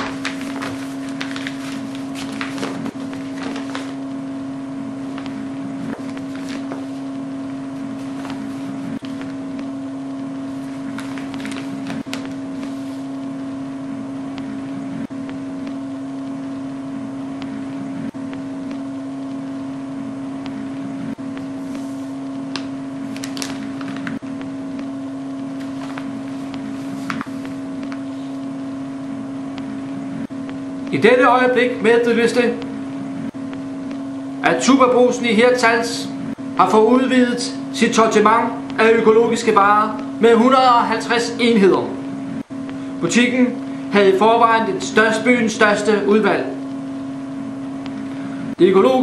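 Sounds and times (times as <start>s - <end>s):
static crackles: 0.0s - 49.0s
steady buzzing tone: 0.0s - 49.0s.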